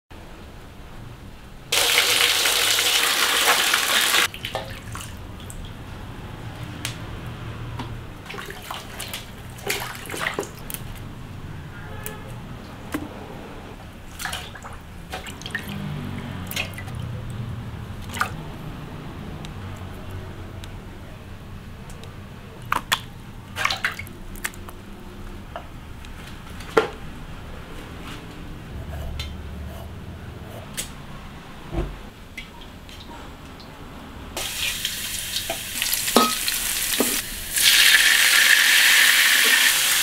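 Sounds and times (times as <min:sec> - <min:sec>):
small splashes and drips: 0:04.2 - 0:05.8, 0:08.2 - 0:11.0, 0:14.1 - 0:18.4, 0:22.6 - 0:24.8.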